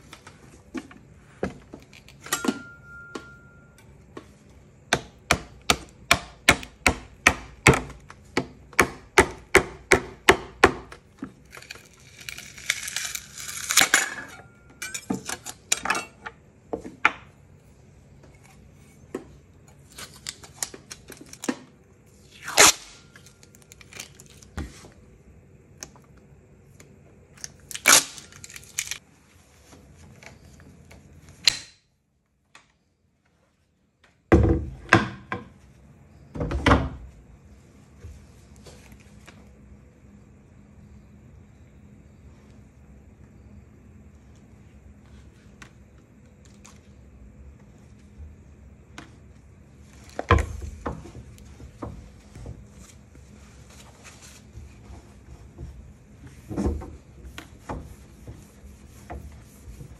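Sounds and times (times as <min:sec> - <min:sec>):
plastic film rustling: 0:27.7 - 0:29.0.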